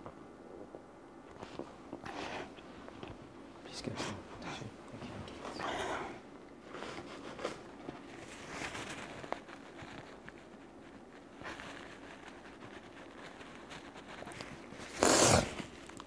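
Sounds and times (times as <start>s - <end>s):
paper tissue rustling: 6.6s - 16.0s.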